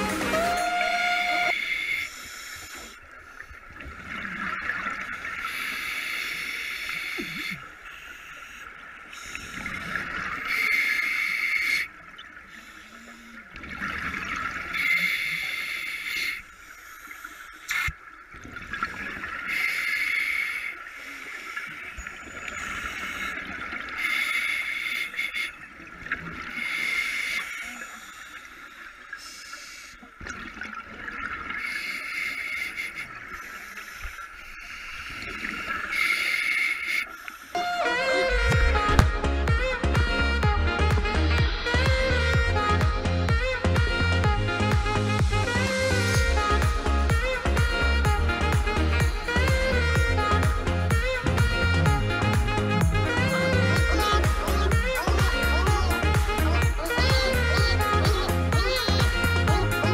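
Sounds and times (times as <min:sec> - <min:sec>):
regulator hissing inhale: 0:01.5 - 0:03.6, 0:05.5 - 0:09.7, 0:12.5 - 0:13.5, 0:14.8 - 0:17.7, 0:19.5 - 0:21.8, 0:24.0 - 0:25.6, 0:26.6 - 0:30.1
exhaled bubbles gurgling: 0:13.5 - 0:15.6.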